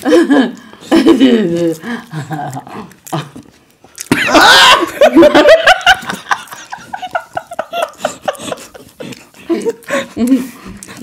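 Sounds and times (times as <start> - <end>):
people laughing hard: 4.1 - 10.6.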